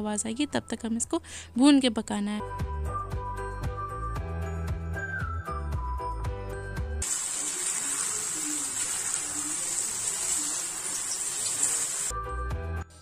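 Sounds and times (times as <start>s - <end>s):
background music: 0.0s - 7.0s, 12.1s - 13.0s
chickpeas sizzling in a frying pan: 7.0s - 12.1s.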